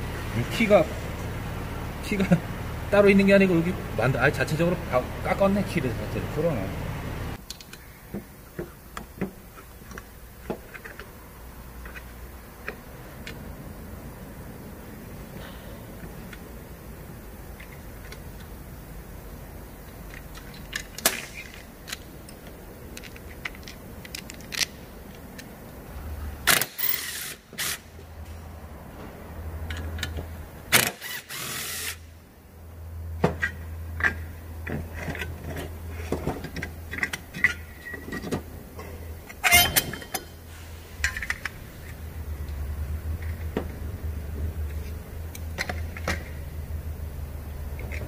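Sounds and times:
metal parts clicking and clinking: 19.8s - 25.5s, 39.2s - 40.4s, 41.0s - 42.0s
low hum: 40.4s - 48.0s.

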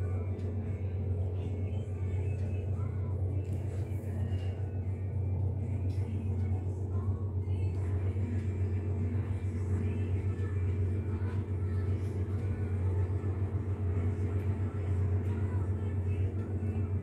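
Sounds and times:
low rumble: 0.0s - 17.0s.

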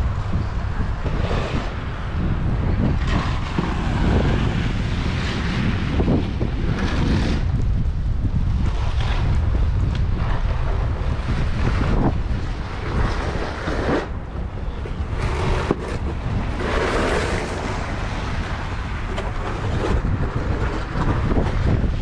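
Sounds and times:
outdoor street ambience: 0.0s - 22.0s
wind buffeting microphone: 0.0s - 22.0s.

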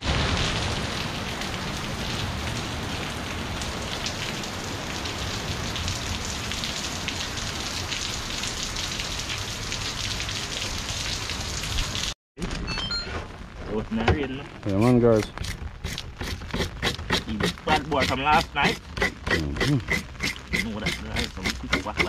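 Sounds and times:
steady rain: 0.0s - 22.0s
raindrops ticking close by: 13.3s - 22.0s.

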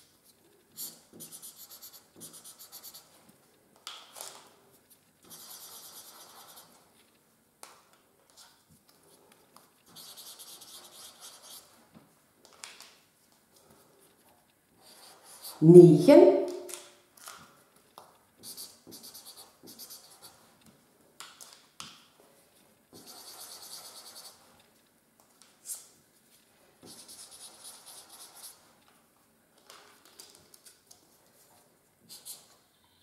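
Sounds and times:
markers scratching on paper: 0.7s - 3.2s, 4.8s - 7.2s, 9.8s - 11.8s, 14.8s - 15.7s, 18.4s - 20.6s, 22.9s - 24.7s, 26.8s - 28.8s, 32.1s - 32.6s
sharp marker tap: 18.4s - 20.4s.

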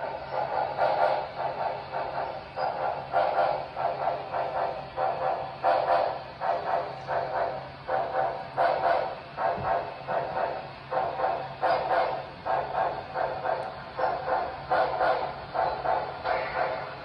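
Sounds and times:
model steam locomotive chuffing: 0.0s - 17.0s
steady low hum: 0.0s - 17.0s.

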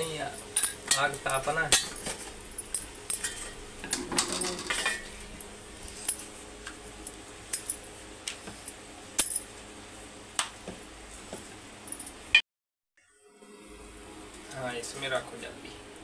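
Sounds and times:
wood fire crackling: 0.0s - 10.9s.

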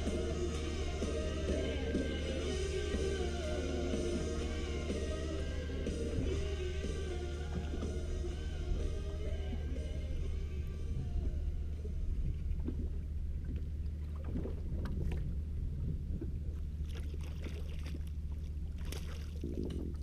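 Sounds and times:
outboard motor idling: 0.0s - 18.8s
net splashing into water: 16.8s - 20.0s.

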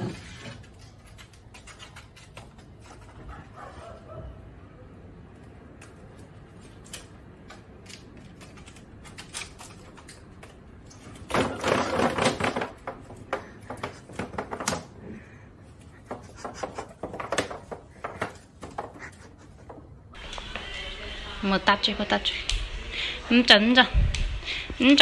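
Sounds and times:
bamboo tray clattering on tiles: 9.6s - 15.3s, 15.9s - 19.9s.

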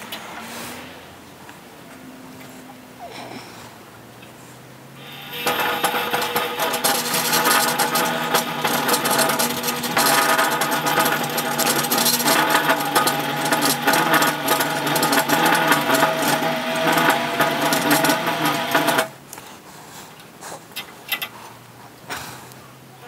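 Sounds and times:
bead roller whirring and rattling: 5.0s - 19.2s.

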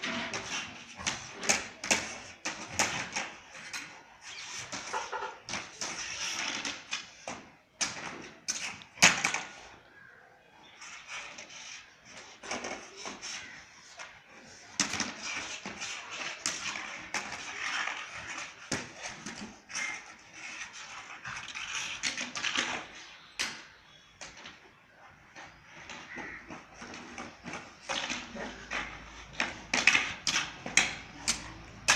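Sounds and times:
plastic wiper scraping concrete: 0.0s - 9.8s, 10.6s - 24.5s, 25.1s - 31.9s.

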